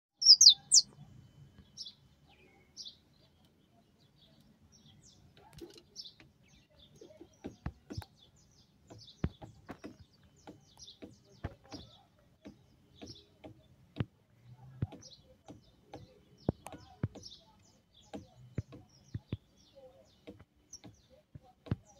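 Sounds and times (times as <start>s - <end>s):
finch chirping: 0.2s - 0.9s.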